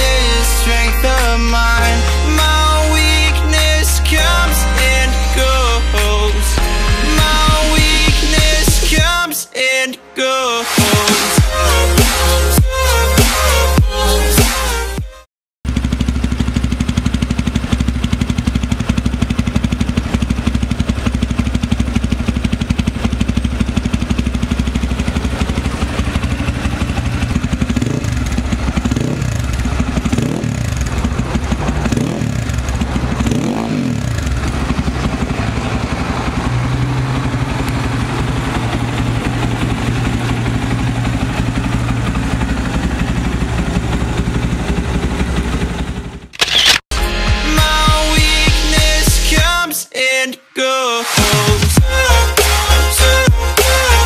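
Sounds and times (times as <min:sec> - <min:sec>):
motorcycle engine revving: 0:00.0 - 0:09.2, 0:15.6 - 0:46.6, 0:51.1 - 0:54.0
motorcycle engine idling: 0:15.6 - 0:46.4.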